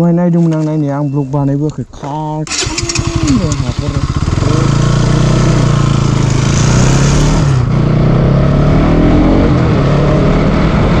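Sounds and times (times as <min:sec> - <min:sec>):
motorcycle engine running: 0:02.5 - 0:11.0.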